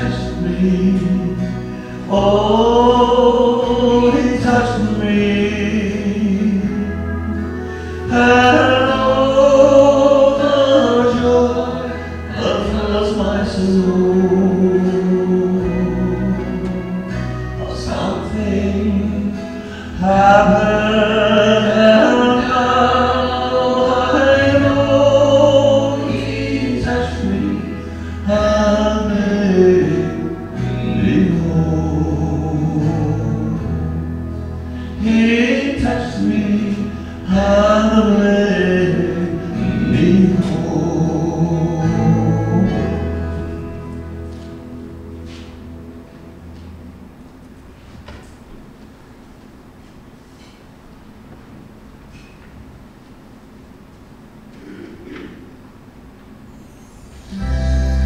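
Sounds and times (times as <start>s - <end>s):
man singing a hymn into microphone: 0.0s - 44.0s
recorded accompaniment music: 0.0s - 51.4s, 56.4s - 58.0s.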